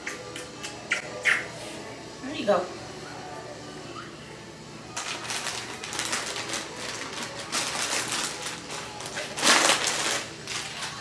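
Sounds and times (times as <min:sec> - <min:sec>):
plastic bag crinkling: 0:05.0 - 0:11.0.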